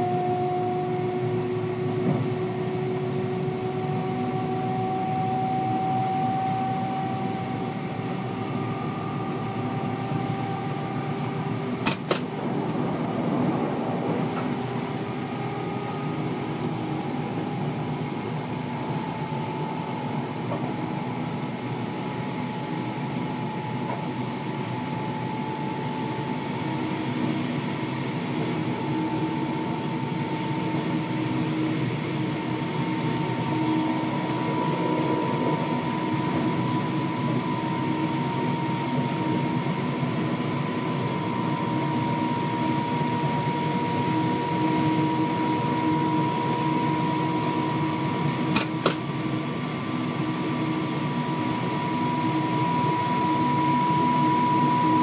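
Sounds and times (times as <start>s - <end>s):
train running gear rumble on rails: 2.0s - 2.4s, 11.6s - 15.8s, 34.1s - 37.0s
train motor whine: 28.3s - 49.1s.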